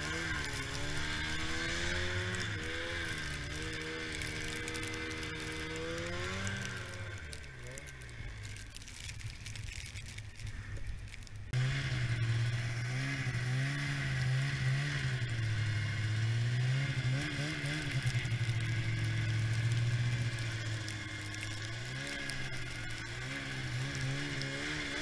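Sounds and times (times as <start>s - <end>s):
snowmobile engine running: 0.0s - 25.0s.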